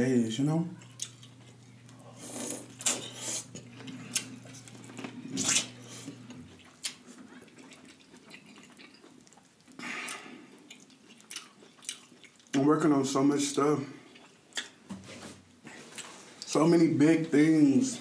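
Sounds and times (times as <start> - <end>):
corn on the cob being chewed: 0.8 - 12.6.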